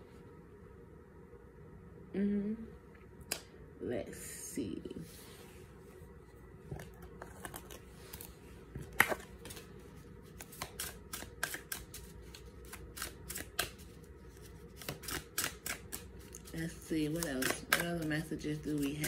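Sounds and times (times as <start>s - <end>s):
cards being shuffled: 6.7s - 19.0s.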